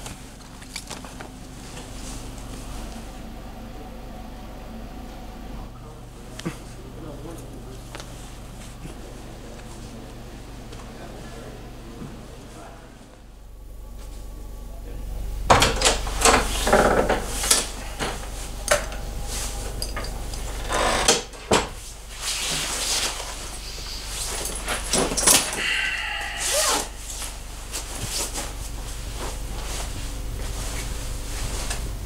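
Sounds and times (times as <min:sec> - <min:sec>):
door opening and closing: 0:15.5 - 0:19.0, 0:19.6 - 0:21.8
nylon jacket rustling: 0:21.8 - 0:24.9.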